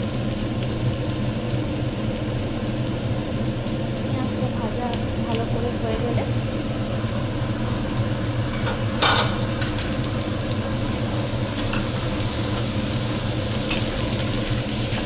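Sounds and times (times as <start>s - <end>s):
burst of sizzling: 0.0s - 15.0s
onions frying in hot oil: 0.0s - 15.0s.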